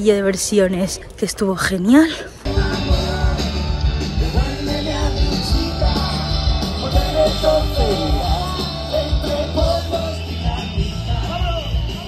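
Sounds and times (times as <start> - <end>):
rock music with singer: 2.4 - 12.0.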